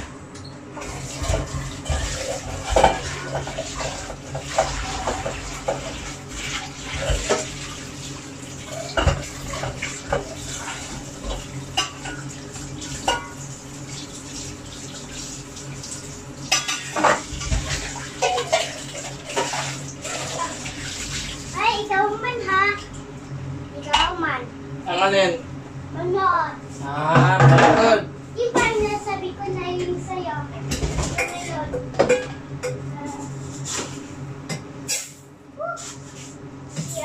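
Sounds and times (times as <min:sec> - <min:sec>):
steady low hum: 0:00.0 - 0:37.0
pots and kitchenware clinking: 0:00.8 - 0:14.6, 0:16.4 - 0:20.8, 0:30.7 - 0:32.8.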